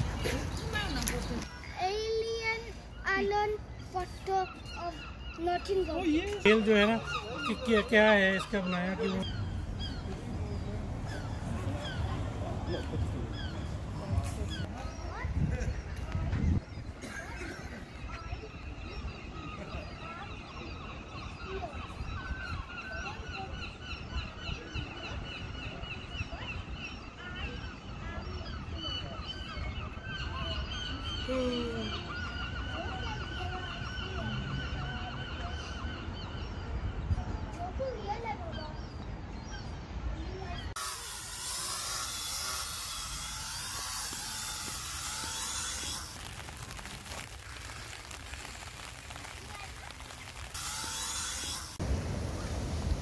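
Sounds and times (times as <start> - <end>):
birds calling and chirping: 0.0 - 53.0
wind rumble on microphone: 9.3 - 17.0, 51.7 - 53.0
loud steady hiss: 40.8 - 53.0.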